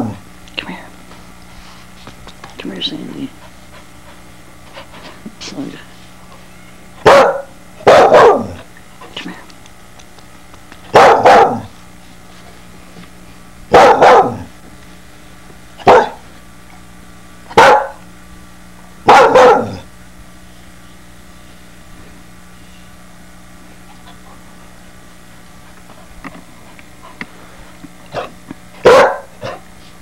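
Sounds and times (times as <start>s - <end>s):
puppy barking: 7.0s - 8.6s, 10.9s - 11.7s, 13.7s - 14.5s, 15.8s - 16.2s, 17.5s - 18.0s, 19.1s - 19.9s, 28.1s - 29.6s.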